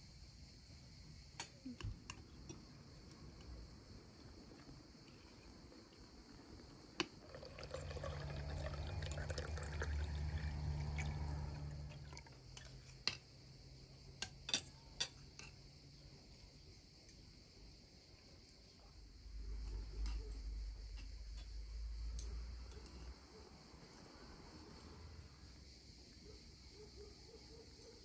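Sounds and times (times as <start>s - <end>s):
water pouring into a glass: 7.2s - 12.4s.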